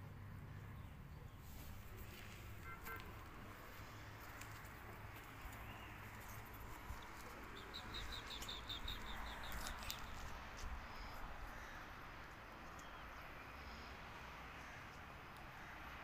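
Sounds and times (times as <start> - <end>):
small bird chirping: 7.5 - 10.2.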